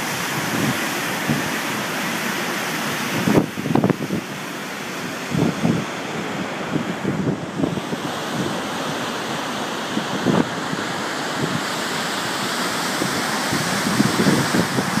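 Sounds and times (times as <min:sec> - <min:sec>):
waterfall rushing: 0:00.0 - 0:15.0
wind buffeting microphone: 0:03.1 - 0:04.4, 0:05.1 - 0:09.2, 0:09.8 - 0:15.0.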